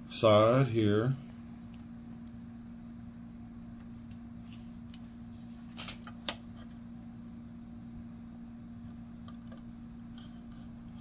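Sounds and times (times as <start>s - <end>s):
steady low hum: 0.0s - 11.0s
tape crinkling: 3.5s - 6.4s.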